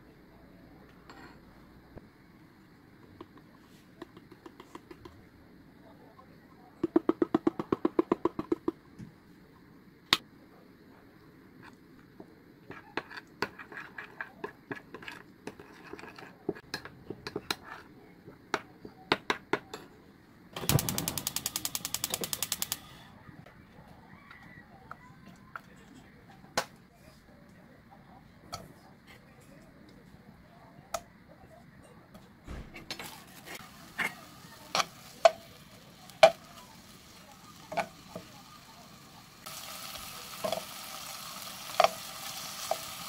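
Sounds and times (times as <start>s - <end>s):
gas igniter ticking: 20.6s - 23.0s.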